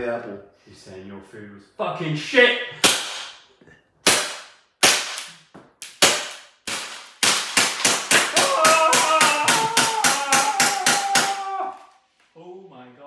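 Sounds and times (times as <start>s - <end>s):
bb gun shots: 4.0s - 5.3s, 5.9s - 8.3s.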